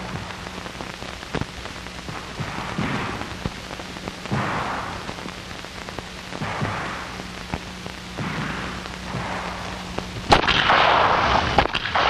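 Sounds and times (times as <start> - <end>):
film soundtrack hiss and crackle: 0.0 - 12.0
muffled revolver shots: 10.3 - 12.0.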